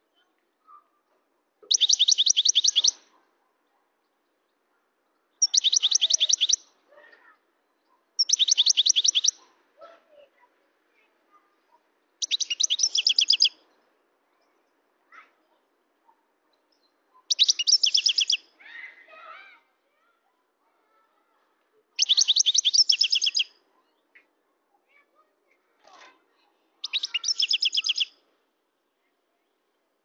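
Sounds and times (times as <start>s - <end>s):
bird singing rapid high notes: 1.7s - 3.0s, 5.4s - 6.6s, 8.2s - 9.4s, 12.2s - 13.5s, 17.3s - 18.4s, 22.0s - 23.5s, 26.8s - 28.1s.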